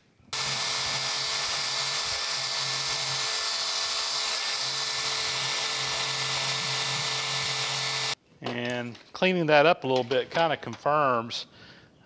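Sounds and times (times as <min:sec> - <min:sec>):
angle grinder motor whine: 0:00.4 - 0:08.2.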